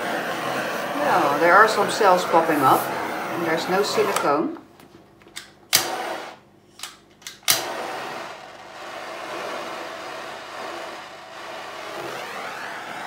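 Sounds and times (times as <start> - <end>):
torch flame hissing: 0.0 - 4.5, 5.8 - 6.4, 7.5 - 13.0
torch igniter clicks: 5.2 - 6.0, 6.8 - 7.7.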